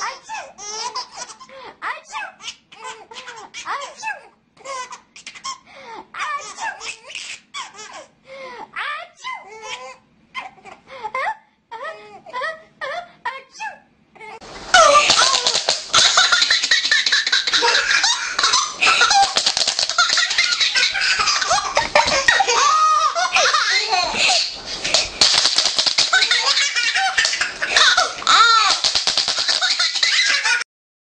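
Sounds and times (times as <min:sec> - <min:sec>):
baby belly-laughing: 0:14.3 - 0:30.6.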